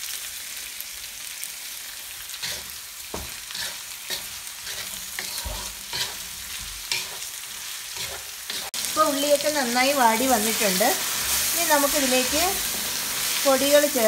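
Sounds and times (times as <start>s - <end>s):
vegetables sizzling in hot oil: 0.0s - 14.0s
wooden spatula scraping pan: 2.4s - 7.2s.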